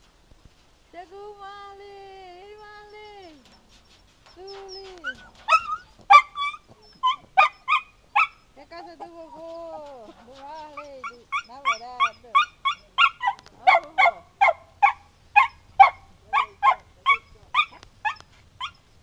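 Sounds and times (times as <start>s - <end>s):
dog whining: 3.0s - 18.9s
dog barking sharply: 11.3s - 18.8s.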